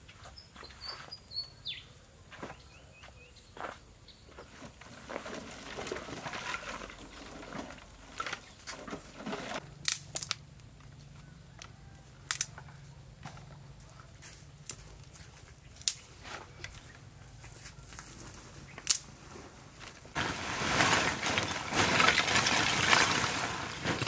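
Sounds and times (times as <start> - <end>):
rustling and crinkling: 4.3 - 9.6, 12.4 - 24.0.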